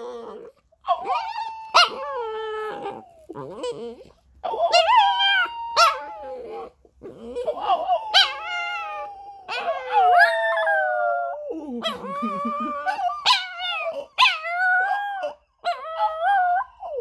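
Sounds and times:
small dog howling: 0:00.0 - 0:17.0.

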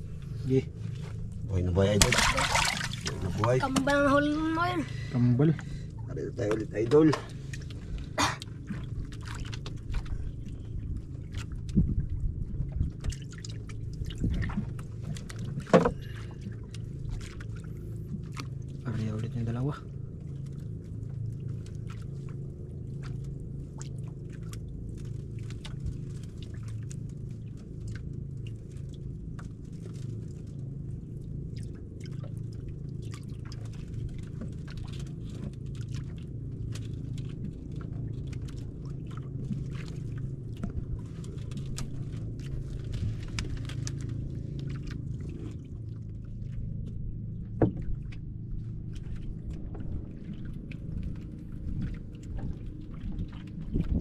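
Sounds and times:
boat engine humming: 0:00.0 - 0:54.0
water sounds: 0:00.0 - 0:54.0.

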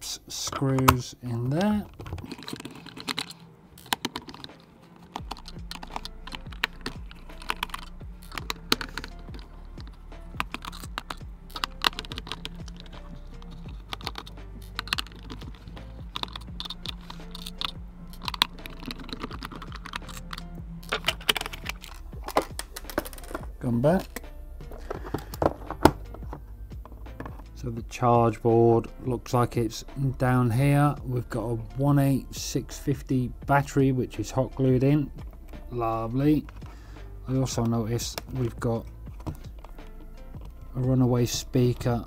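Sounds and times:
quiet background music: 0:00.0 - 0:42.0
screwdriver clicking on plastic: 0:01.9 - 0:24.2.

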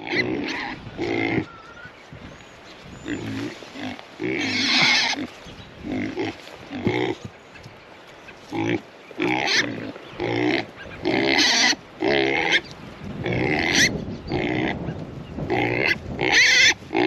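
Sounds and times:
pigs grunting: 0:00.0 - 0:01.6, 0:03.0 - 0:07.3, 0:08.5 - 0:17.0.

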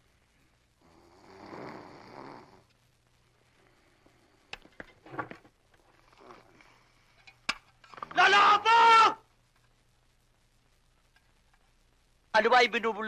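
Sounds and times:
man snoring: 0:00.8 - 0:02.7.

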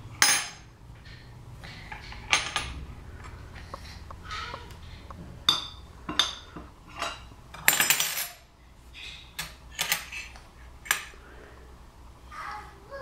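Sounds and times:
spoon and dishes clinking: 0:05.4 - 0:08.4.

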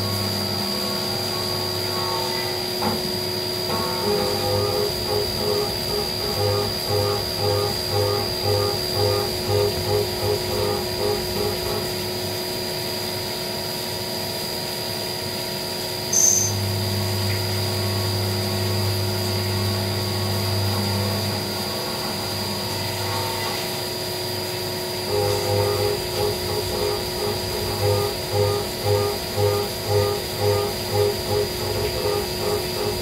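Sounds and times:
milling spindle whine: 0:00.0 - 0:12.4, 0:24.4 - 0:33.0
low machine hum: 0:00.0 - 0:13.8, 0:15.3 - 0:33.0
metal cutting noise: 0:03.7 - 0:12.2, 0:25.0 - 0:33.0.

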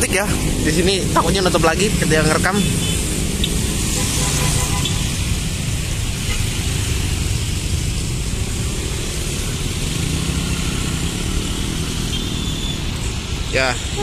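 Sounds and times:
traffic on wet road: 0:00.0 - 0:14.0.

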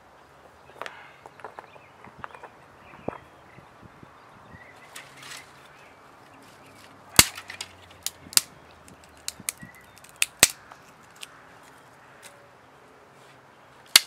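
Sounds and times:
dry sticks snapping: 0:06.8 - 0:12.4.

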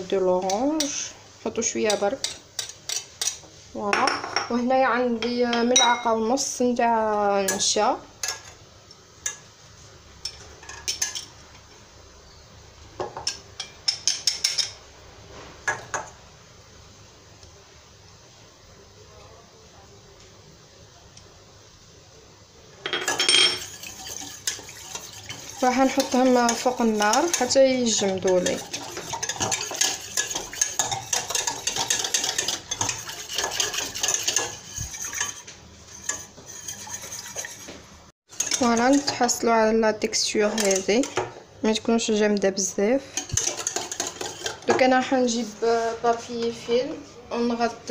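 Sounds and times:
whisk clinking in metal bowl: 0:22.9 - 0:37.7, 0:38.3 - 0:39.4, 0:40.4 - 0:41.2, 0:43.2 - 0:45.0.

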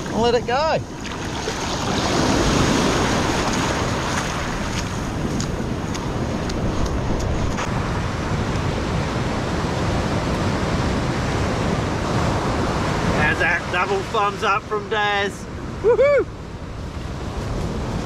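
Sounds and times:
wind on the microphone: 0:00.0 - 0:13.3
waves breaking on a beach: 0:00.0 - 0:18.0.

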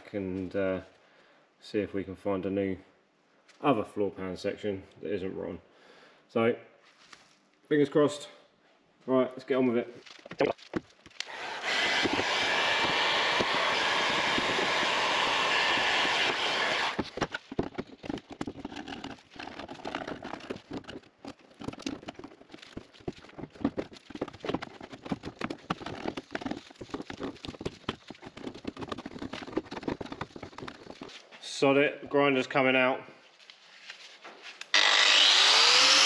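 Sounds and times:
heat gun blowing: 0:11.2 - 0:17.1, 0:34.7 - 0:36.0.

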